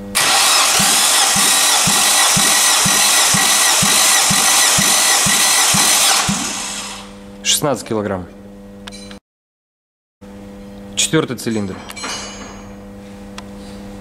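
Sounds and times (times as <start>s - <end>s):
engine cranking on starter motor: 0.1s - 7.1s.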